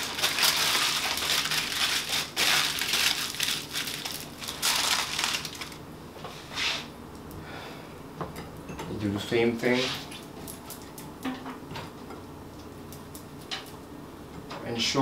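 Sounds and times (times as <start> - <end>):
aluminium foil crinkling: 0.0 - 5.8.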